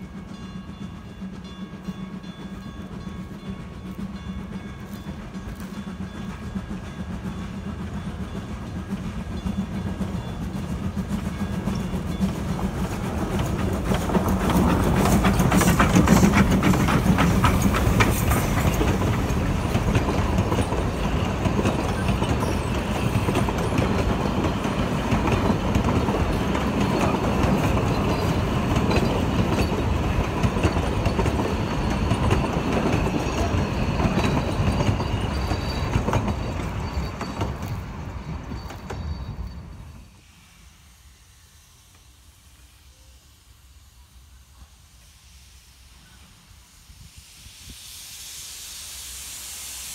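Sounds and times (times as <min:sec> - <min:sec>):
steam locomotive passing: 0:00.0 - 0:49.9
wheels clicking over rail joints: 0:00.1 - 0:40.0.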